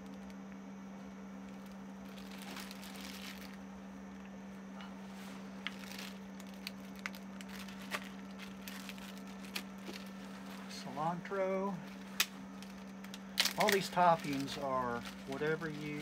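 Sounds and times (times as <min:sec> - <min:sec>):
steady low hum: 0:00.0 - 0:16.0
plastic bag crinkling: 0:01.5 - 0:03.6, 0:05.4 - 0:10.9, 0:11.8 - 0:16.0.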